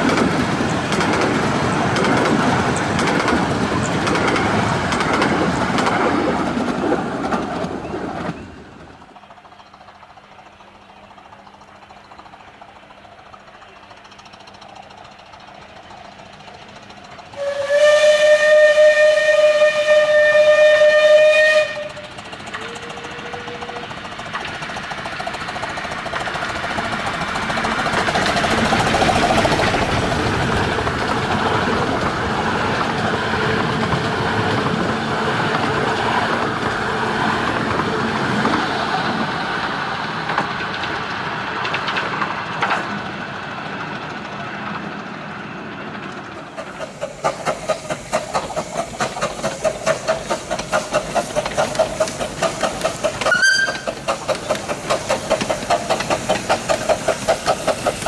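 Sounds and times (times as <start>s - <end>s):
miniature train passing: 0.0s - 58.0s
steam locomotive whistle: 17.3s - 24.0s, 53.2s - 53.9s.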